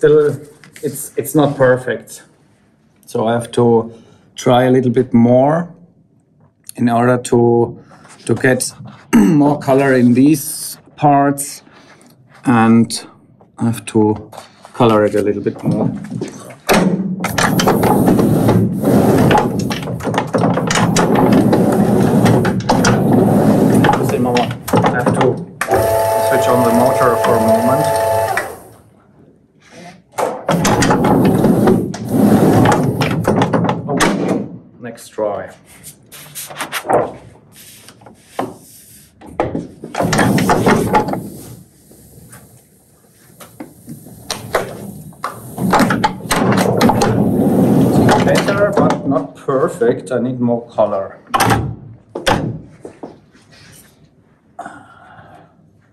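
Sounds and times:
proof press clattering: 16.7 - 28.8, 30.4 - 34.4, 39.9 - 41.4, 44.0 - 49.0.

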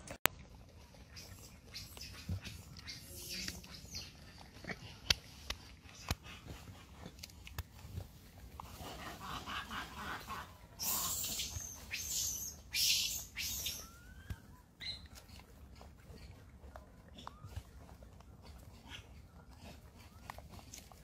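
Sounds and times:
monkeys calling: 1.2 - 4.2, 8.8 - 15.0
monkeys screeching: 10.8 - 14.2.

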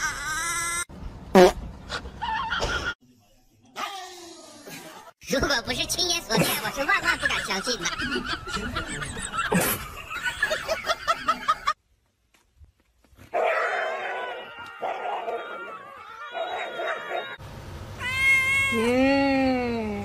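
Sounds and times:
cat meowing: 18.0 - 19.0.

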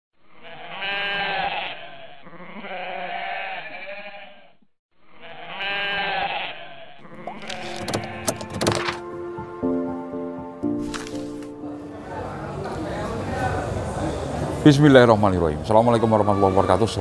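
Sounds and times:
goat bleating: 0.3 - 8.3.

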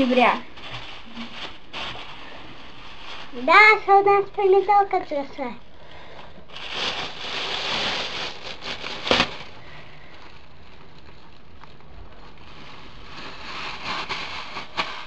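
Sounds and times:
plastic bag rustling and crinkling: 0.0 - 15.0.

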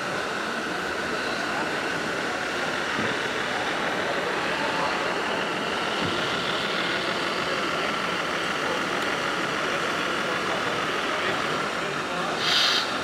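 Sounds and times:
exhibition hall crowd noise: 0.0 - 13.0
toy truck engine sound: 0.0 - 13.0.

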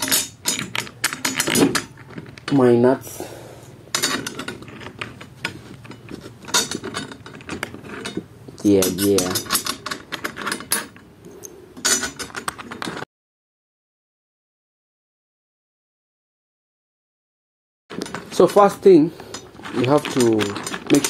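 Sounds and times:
drum tension rods clicking: 17.9 - 21.0.

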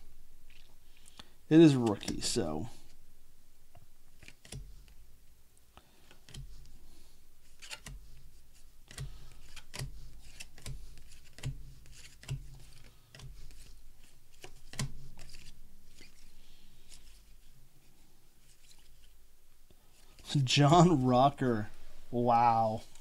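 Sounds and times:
cards flipped by hand: 0.5 - 3.0, 3.7 - 5.0, 6.1 - 6.8, 7.4 - 17.6, 18.4 - 19.2.

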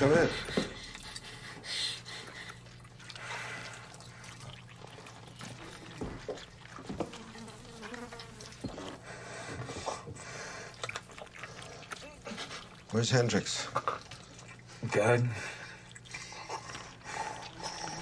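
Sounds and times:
flies buzzing: 6.9 - 9.2.

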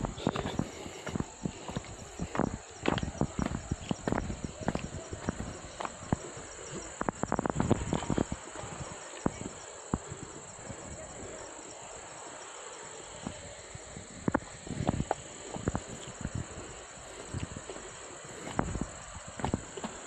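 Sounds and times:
footsteps on loose stones: 0.0 - 8.4, 14.9 - 20.0
high-pitched insect chorus: 0.0 - 20.0.

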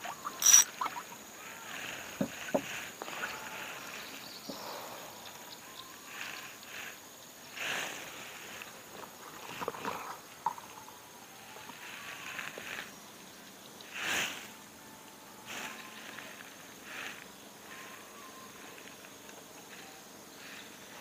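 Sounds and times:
fishing tackle clicks: 0.4 - 0.9.

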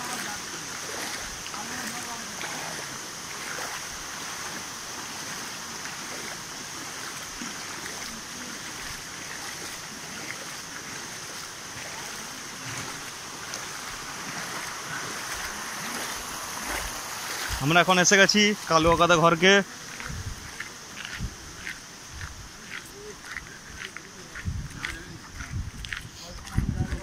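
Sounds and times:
floodwater sloshing as people wade: 0.0 - 27.0.

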